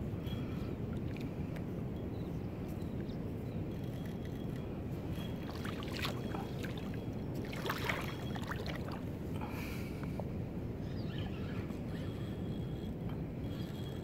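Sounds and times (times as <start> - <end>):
water rushing: 7.5 - 9.0.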